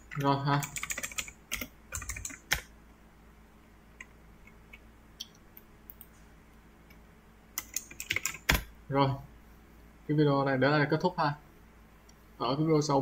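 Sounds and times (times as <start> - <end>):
computer keyboard keystrokes: 0.1 - 2.7, 7.6 - 8.7.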